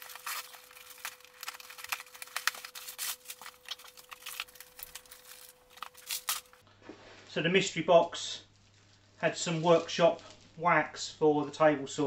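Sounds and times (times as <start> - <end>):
utility knife slitting packing tape: 0.0 - 6.5
packing paper crinkling and rustling: 0.0 - 6.6.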